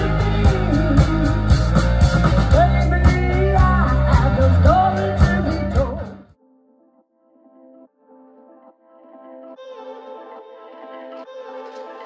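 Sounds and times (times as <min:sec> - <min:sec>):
woman singing: 0:00.0 - 0:01.5, 0:02.5 - 0:06.2
live rock band playing: 0:00.0 - 0:06.3.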